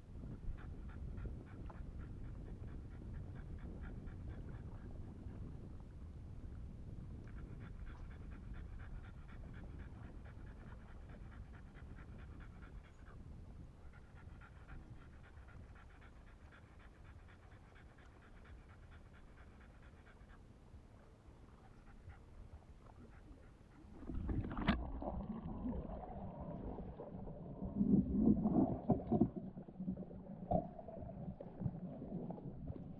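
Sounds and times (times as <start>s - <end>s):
dog panting: 0.6s - 4.9s, 7.4s - 13.2s, 13.8s - 20.5s.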